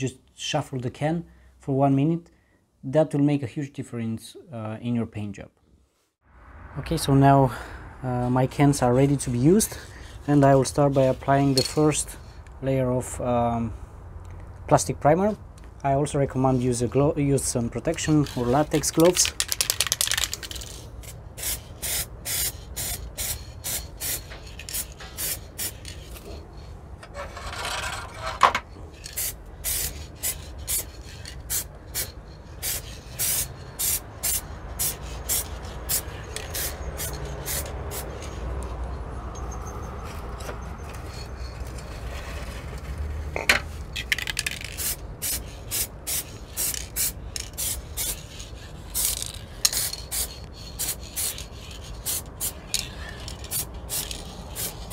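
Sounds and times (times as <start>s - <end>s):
aerosol spray can hissing in bursts: 21.0s - 25.9s, 29.1s - 38.2s, 44.8s - 52.6s, 53.4s - 54.9s.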